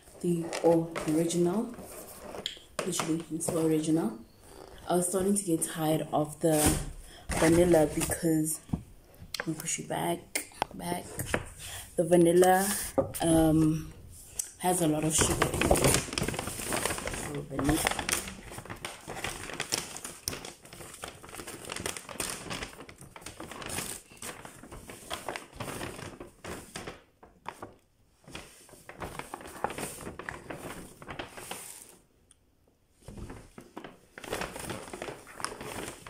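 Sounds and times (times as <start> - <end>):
plastic packaging crinkling: 12.3 - 32.1, 33.0 - 36.0.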